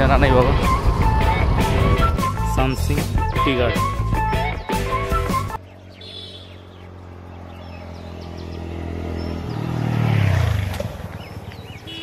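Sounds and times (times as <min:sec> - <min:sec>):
bird chirps: 0:05.6 - 0:10.0, 0:11.1 - 0:12.0
motorcycle passing by: 0:05.6 - 0:12.0.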